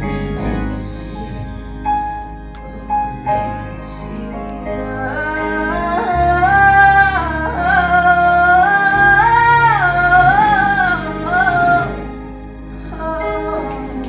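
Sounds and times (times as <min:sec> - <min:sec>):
low sustained accompaniment: 0:00.0 - 0:14.0
woman singing gospel: 0:03.6 - 0:14.0.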